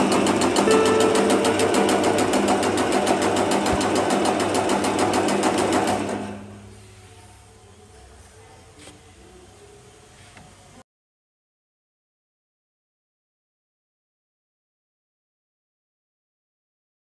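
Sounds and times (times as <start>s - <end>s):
machine motor hum: 0.0s - 6.4s.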